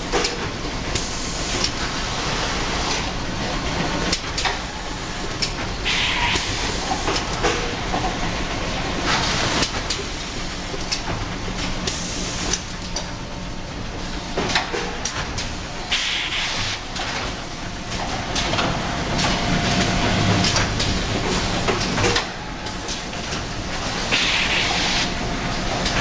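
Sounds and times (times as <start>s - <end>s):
machine clicks and clatter: 0.0s - 13.2s, 14.3s - 26.0s
packing machinery humming: 16.8s - 26.0s.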